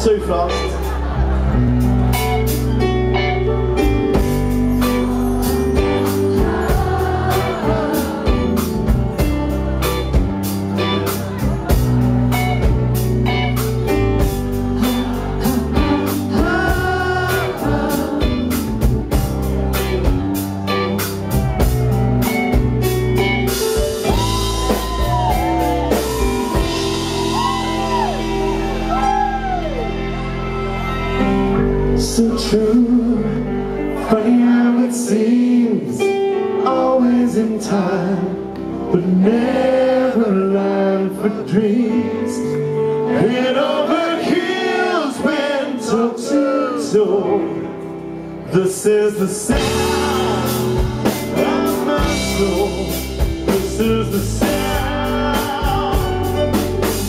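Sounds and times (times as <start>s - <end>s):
live rock band playing ballad: 0.0s - 57.0s
drum kit beat: 3.8s - 29.7s, 49.5s - 57.0s
male lead vocal: 4.0s - 12.8s, 13.5s - 19.6s, 31.6s - 57.0s.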